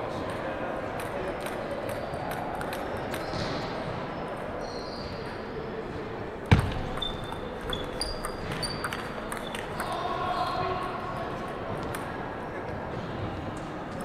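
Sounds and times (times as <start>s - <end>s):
shoe squeaks: 4.6s - 5.4s, 6.6s - 10.7s
loud thump: 6.5s - 6.9s
table tennis ball clicks: 6.5s - 10.0s.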